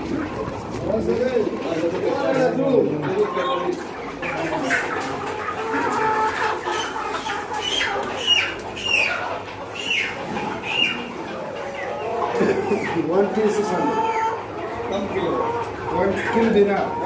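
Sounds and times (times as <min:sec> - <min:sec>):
chickens calling: 0:00.0 - 0:17.0.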